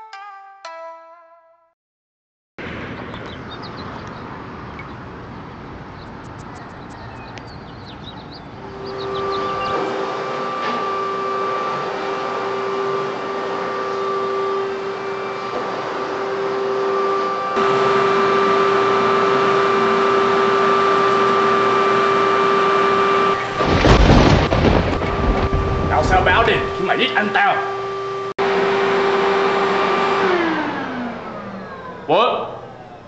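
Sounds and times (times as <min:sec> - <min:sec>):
vacuum cleaner motor whine: 0:08.6 - 0:33.0
deep thump and rumble: 0:23.6 - 0:26.8.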